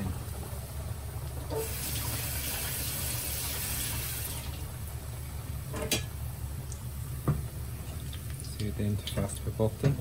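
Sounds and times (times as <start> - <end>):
fish deep-frying in oil: 1.2 - 5.0.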